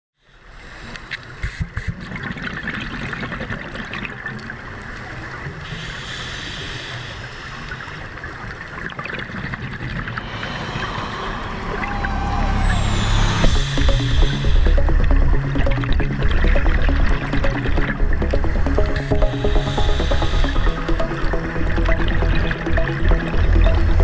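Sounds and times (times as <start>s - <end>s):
underwater regulator bubbles: 13.3s - 24.0s.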